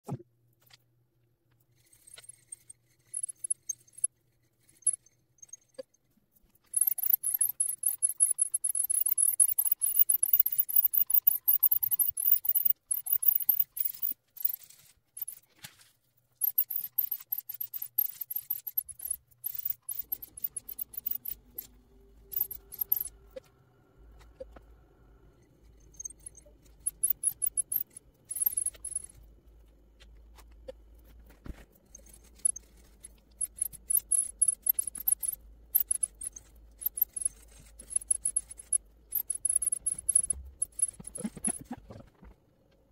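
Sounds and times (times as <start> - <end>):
scattered clicks: 3.1 - 4.1, 6.6 - 15.4, 16.4 - 23.5, 25.8 - 29.3, 31.8 - 41.9.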